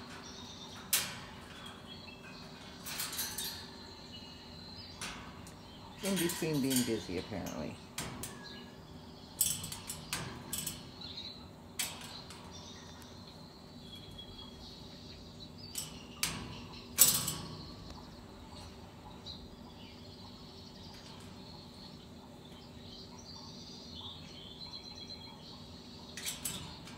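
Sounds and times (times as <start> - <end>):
faint bird chirps: 0.0 - 26.9
low steady hum: 0.0 - 26.9
bird clanking on metal cage bars: 0.1 - 4.2, 4.8 - 13.4, 15.7 - 18.8, 20.8 - 23.0, 26.1 - 26.9.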